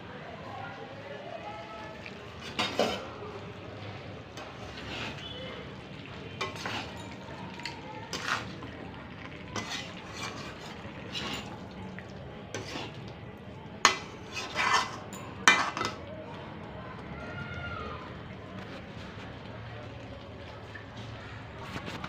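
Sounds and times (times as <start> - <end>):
metal spoon scraping a pan: 2.3 - 3.1, 4.4 - 5.4, 6.4 - 8.7, 9.6 - 11.7, 12.5 - 13.0, 13.8 - 16.0
spoon clinking against pan: 6.4 - 8.4, 13.8 - 16.0.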